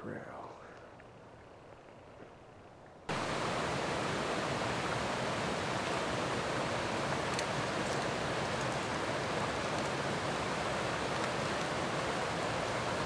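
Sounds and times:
brook rushing over rocks: 0:03.1 - 0:13.0.

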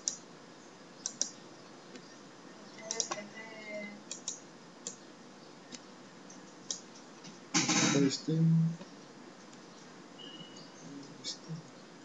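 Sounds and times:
computer mouse clicking: 0:00.0 - 0:00.2, 0:01.0 - 0:02.1, 0:02.8 - 0:03.2, 0:04.1 - 0:05.0, 0:05.7 - 0:07.1
room hiss: 0:00.0 - 0:12.0.

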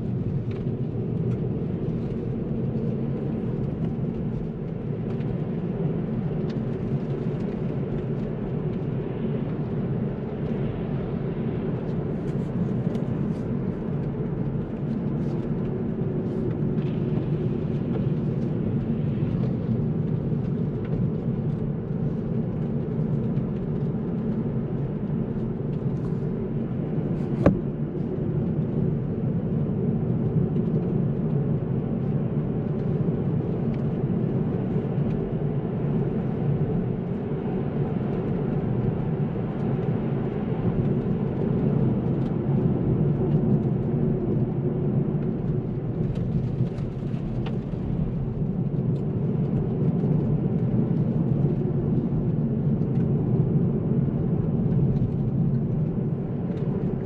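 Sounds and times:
car engine and road drone: 0:00.0 - 0:57.0.

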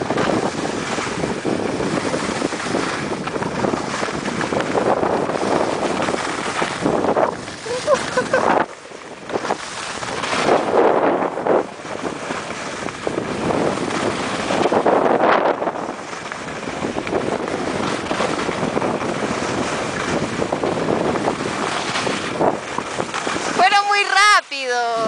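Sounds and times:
wind rushing over microphone: 0:00.0 - 0:25.0
skis hissing over snow: 0:03.6 - 0:08.7, 0:20.8 - 0:23.6.

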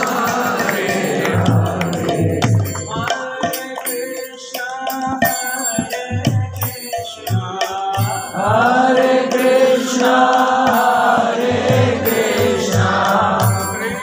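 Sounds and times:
group chanting: 0:00.0 - 0:02.9, 0:08.3 - 0:14.0
hand cymbals: 0:00.0 - 0:14.0
harmonium notes: 0:00.0 - 0:14.0.

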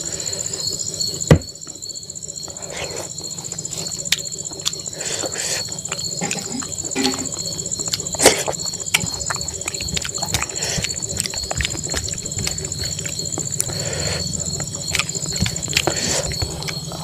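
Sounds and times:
high insect trill: 0:00.0 - 0:17.0
chewing and lip smacks: 0:02.5 - 0:17.0
fingers mixing rice on steel plate: 0:03.6 - 0:16.8.

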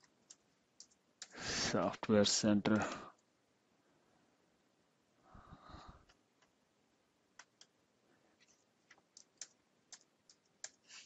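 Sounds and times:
breath into microphone: 0:01.3 - 0:01.7, 0:05.3 - 0:06.1
mouse and keyboard clicks: 0:07.4 - 0:07.7, 0:08.4 - 0:11.0.

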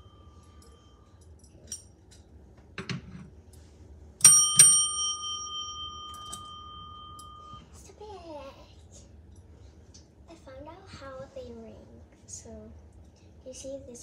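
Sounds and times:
service desk bell ringing: 0:04.2 - 0:07.7.

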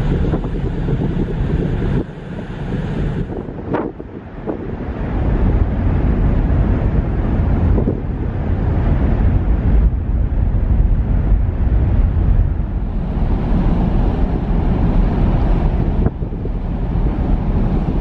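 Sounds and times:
ship running noise: 0:00.0 - 0:18.0
wind buffeting microphone: 0:00.0 - 0:18.0.

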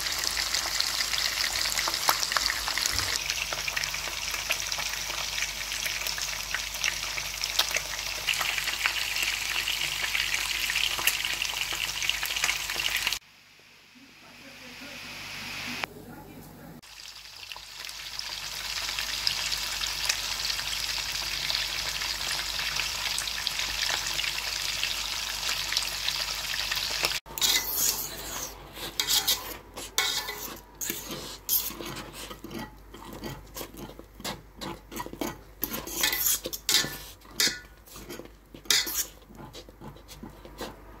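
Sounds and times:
steady hiss: 0:13.2 - 0:15.9
polenta scraping against pot: 0:27.3 - 0:41.0.

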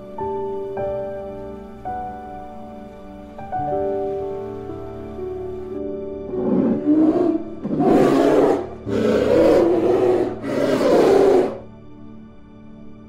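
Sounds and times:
soft background music: 0:00.0 - 0:13.0
polar bear roaring: 0:06.3 - 0:11.7.

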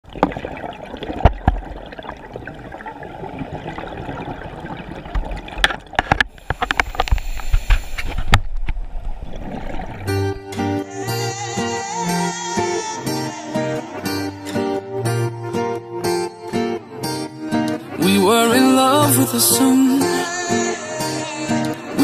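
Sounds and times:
exhaled bubbles crackling: 0:00.0 - 0:10.5
underwater diver breathing: 0:06.2 - 0:08.5
music: 0:10.1 - 0:22.0.

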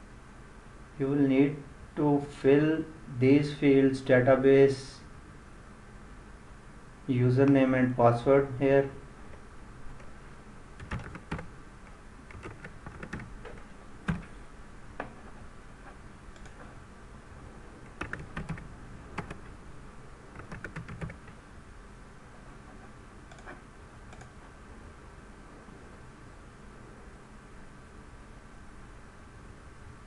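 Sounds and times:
computer keyboard typing: 0:10.8 - 0:11.5, 0:12.3 - 0:14.3, 0:17.8 - 0:19.5, 0:20.3 - 0:21.4, 0:23.3 - 0:24.4.

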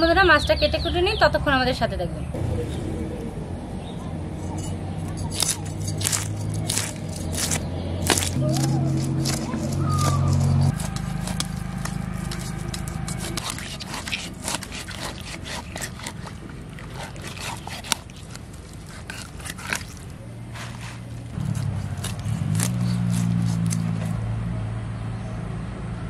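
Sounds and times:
low steady drone: 0:02.3 - 0:15.3
knife scraping fish scales: 0:04.6 - 0:24.2.

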